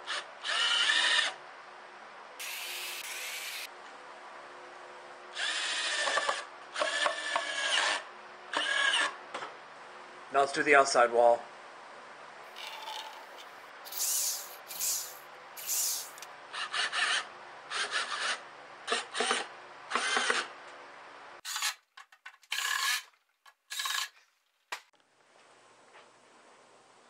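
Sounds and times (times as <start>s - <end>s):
cordless drill driving screws: 2.4s - 3.7s, 12.6s - 17.2s, 17.8s - 20.5s.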